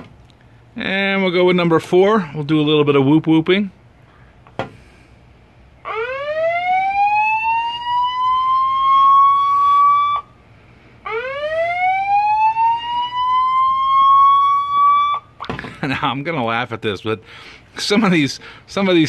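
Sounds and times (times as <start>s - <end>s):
electronic siren whoop: 5.8s - 10.4s, 11.0s - 15.4s.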